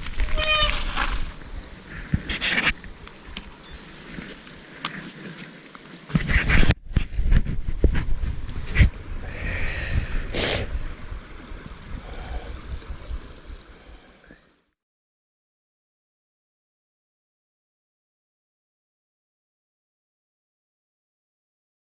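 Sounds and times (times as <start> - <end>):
wind buffeting microphone: 6.2 - 13.7.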